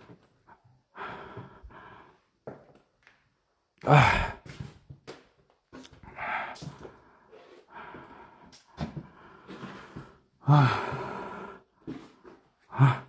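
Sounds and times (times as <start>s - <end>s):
man breathing heavily and sighing: 0.0s - 2.4s, 3.8s - 4.8s, 5.8s - 13.0s
man gasping: 0.9s - 2.2s, 3.8s - 4.6s, 6.0s - 7.1s, 7.7s - 13.0s.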